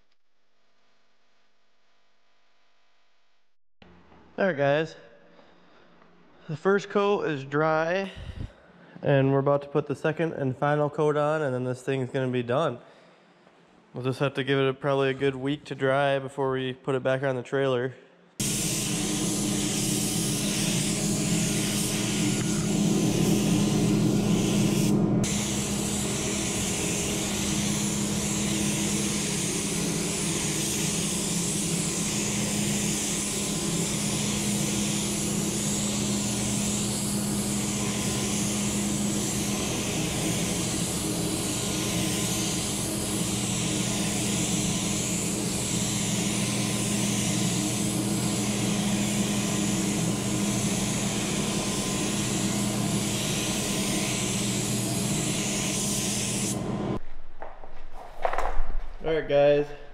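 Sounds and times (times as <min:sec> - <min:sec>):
paint spray gun hissing: 0:18.4 - 0:56.7.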